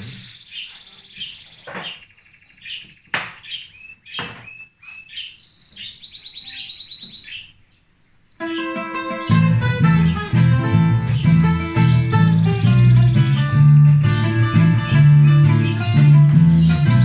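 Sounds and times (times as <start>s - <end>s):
birds chirping and trilling: 0.0s - 17.0s
acoustic guitars playing: 8.4s - 17.0s.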